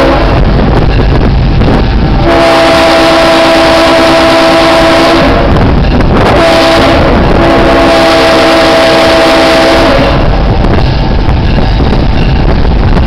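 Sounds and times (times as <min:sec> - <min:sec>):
locomotive air horn: 0:00.0 - 0:00.6, 0:02.2 - 0:10.5
locomotive rumbling: 0:00.0 - 0:13.0
wind on microphone: 0:00.0 - 0:13.0.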